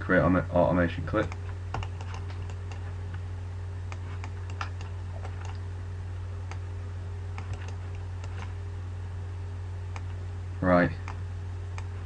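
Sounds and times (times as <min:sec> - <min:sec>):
low electrical hum: 0:00.0 - 0:12.0
mouse and keyboard clicks: 0:01.2 - 0:02.9, 0:03.9 - 0:05.6, 0:07.4 - 0:08.6.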